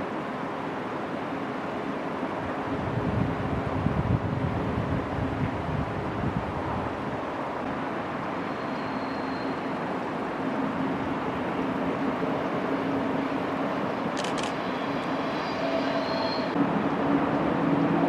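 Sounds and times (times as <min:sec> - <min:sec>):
electric train rumbling: 0:00.0 - 0:18.0
sharp clicks: 0:14.2 - 0:14.6.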